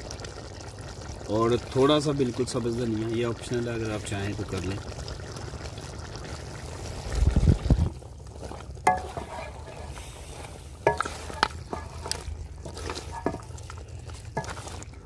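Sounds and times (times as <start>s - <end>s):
food sizzling: 0.0s - 15.0s
spoon scraping metal pot: 8.9s - 14.9s.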